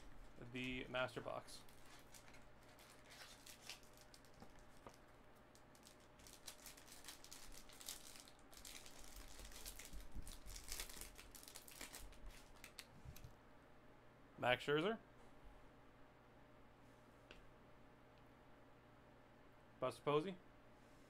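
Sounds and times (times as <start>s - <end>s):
foil wrapper crinkling: 1.6s - 12.9s.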